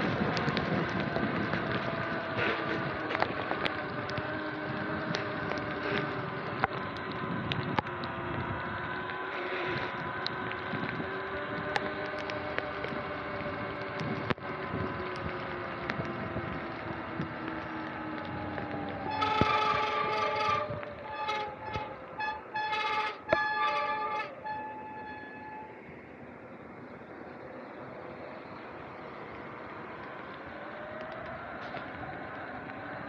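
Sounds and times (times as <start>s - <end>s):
wind on microphone: 0.0s - 22.6s
electric motor and chain whine: 0.0s - 25.7s
tyres hissing on wet pavement: 0.0s - 33.0s.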